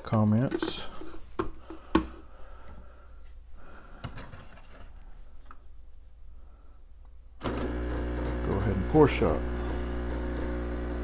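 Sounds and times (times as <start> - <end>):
espresso machine pump buzzing: 7.4 - 11.0.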